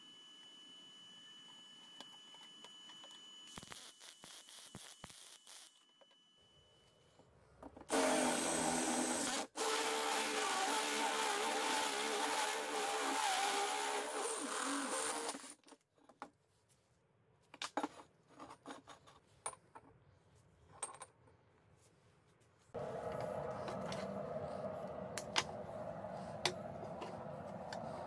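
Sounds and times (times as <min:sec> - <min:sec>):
hole saw grinding through steel: 0:07.9 - 0:15.6.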